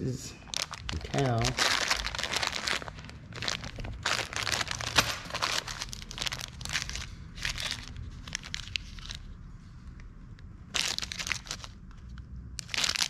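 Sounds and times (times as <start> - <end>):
plastic bags crinkling: 0.4 - 9.3, 10.7 - 11.8, 12.6 - 13.0.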